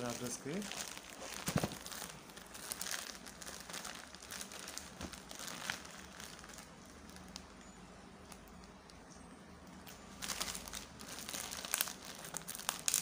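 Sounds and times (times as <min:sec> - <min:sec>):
plastic mailer crinkling: 0:00.0 - 0:07.6, 0:10.2 - 0:13.0.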